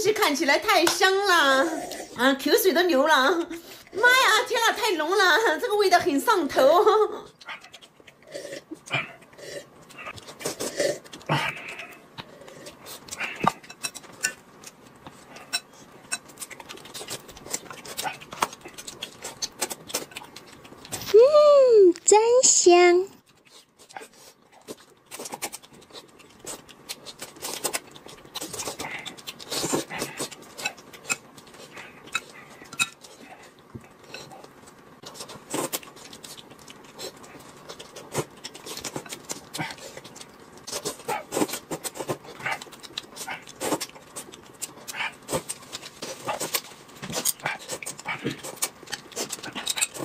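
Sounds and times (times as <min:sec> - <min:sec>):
food chewing: 0:07.2 - 0:21.2, 0:23.1 - 0:50.0.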